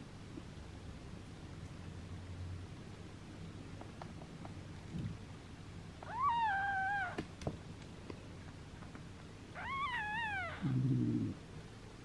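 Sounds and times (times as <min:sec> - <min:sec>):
kitten mewing: 0:06.0 - 0:07.2, 0:09.6 - 0:11.4.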